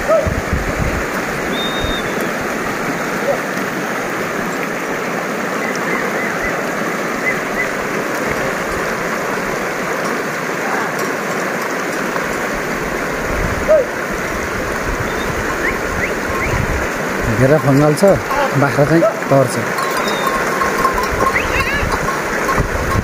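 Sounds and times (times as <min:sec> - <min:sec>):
river rushing over stones: 0:00.0 - 0:23.0
faint bird chirps: 0:20.0 - 0:20.4.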